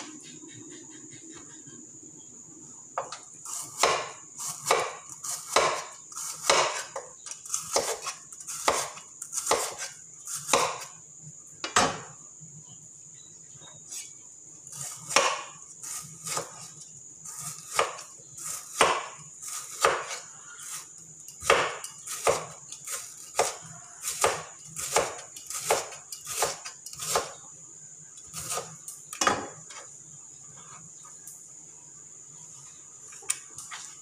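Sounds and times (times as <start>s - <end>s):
knife chopping on wooden board: 3.0s - 10.9s, 15.0s - 15.6s, 17.4s - 20.8s, 21.4s - 27.3s.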